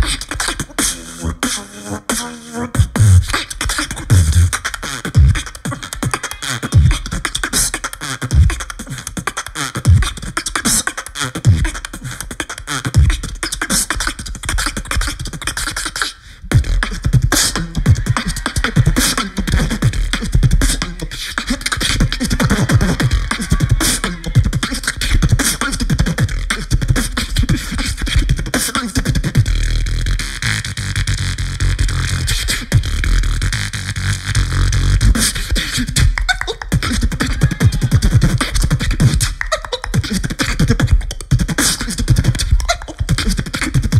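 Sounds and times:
beatboxed sustained bass: 0.0 - 43.9
beatboxing through a microphone: 0.0 - 43.9.

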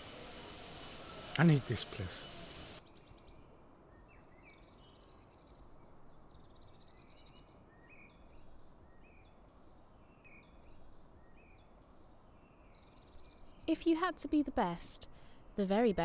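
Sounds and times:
outdoor hiss: 0.0 - 3.1
faint bird chirps: 0.0 - 13.9.

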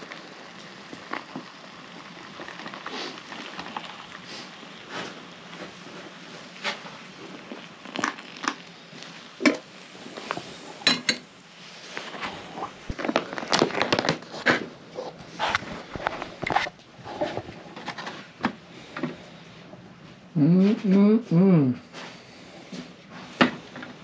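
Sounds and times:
foil pouch crinkling: 12.0 - 14.4.

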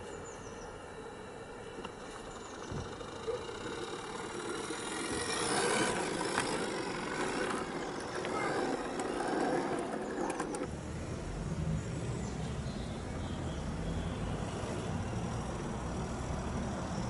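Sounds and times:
model train motor whirring: 0.0 - 10.7
wheels clicking on rails: 0.0 - 10.8.

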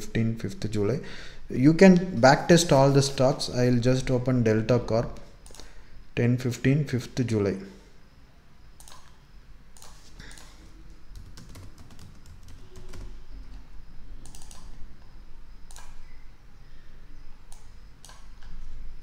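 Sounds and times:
computer keyboard typing: 8.8 - 9.2, 9.8 - 13.6, 14.2 - 14.8, 15.7 - 16.0.

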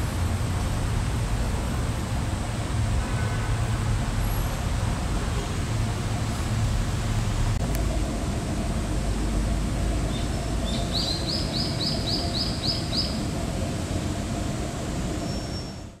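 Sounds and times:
distant traffic: 0.0 - 16.0
bird chirping: 10.1 - 13.2.

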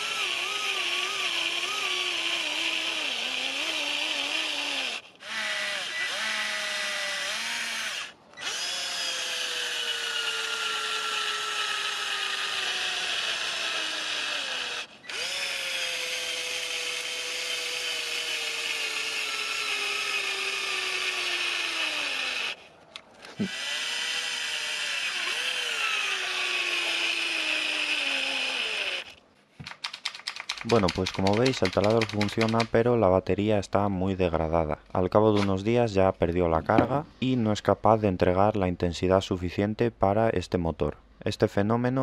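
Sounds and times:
cordless drill whine: 0.0 - 22.6, 23.3 - 29.2.

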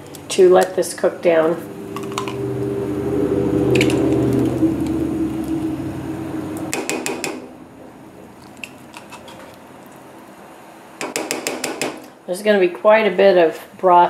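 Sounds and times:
low droning hum: 0.0 - 11.0.

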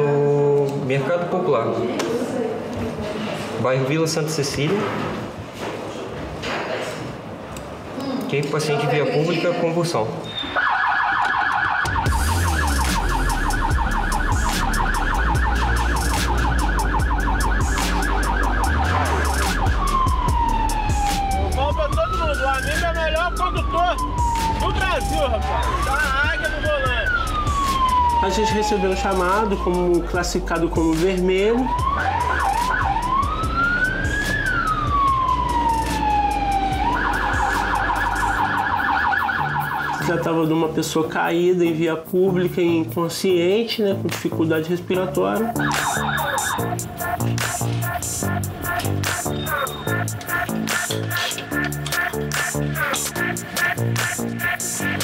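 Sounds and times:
ambulance siren yelping: 10.2 - 40.6, 45.1 - 55.0.

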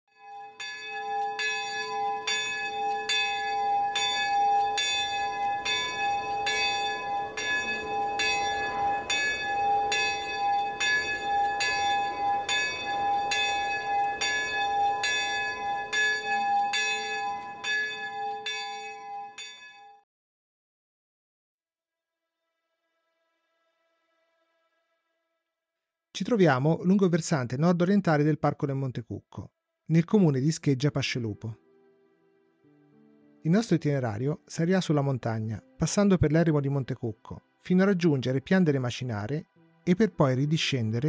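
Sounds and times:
church bell ringing: 0.2 - 20.0.

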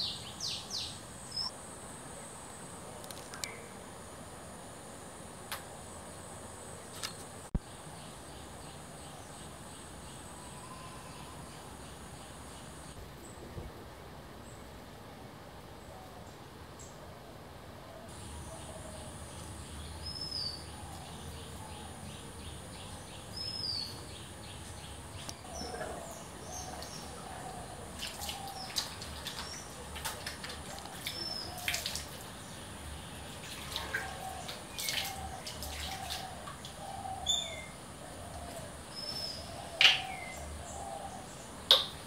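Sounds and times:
steady high hiss: 0.0 - 42.0
birds warbling: 18.0 - 42.0
birds chirping: 18.1 - 42.0
water splashing from tap: 28.0 - 32.3, 33.4 - 36.7.

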